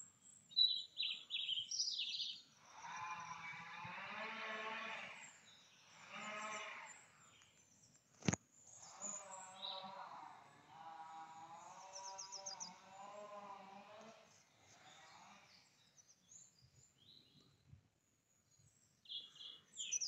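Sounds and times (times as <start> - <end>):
sheep bleating: 2.9 - 5.3, 6.0 - 7.0, 9.0 - 14.3.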